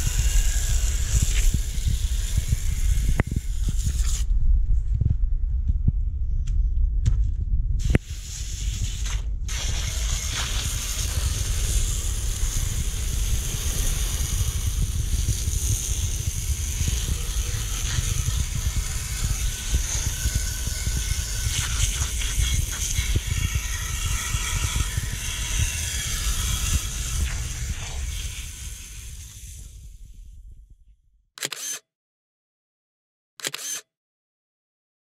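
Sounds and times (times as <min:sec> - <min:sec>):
low rumble: 0:00.0 - 0:31.2
hose spray hissing on metal: 0:07.8 - 0:29.6.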